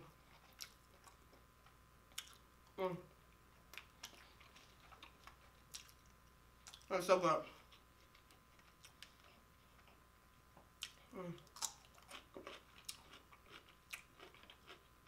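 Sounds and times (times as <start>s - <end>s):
chewing crisp cucumber: 0.2s - 1.4s, 2.1s - 2.4s, 3.7s - 6.9s, 10.8s - 15.0s
person humming: 11.1s - 11.5s.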